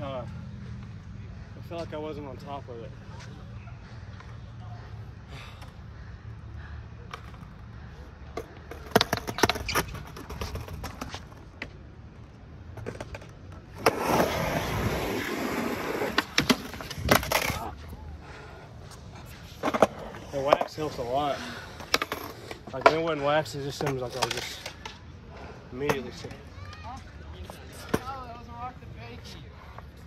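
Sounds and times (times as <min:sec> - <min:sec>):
skateboard clacks on concrete: 0:08.3 - 0:11.8, 0:16.0 - 0:17.7
skateboard scraping along ledge: 0:12.8 - 0:17.9.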